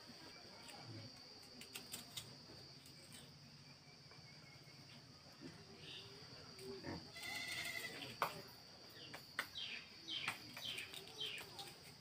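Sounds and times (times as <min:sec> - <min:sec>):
animal bleating: 0:06.8 - 0:08.1.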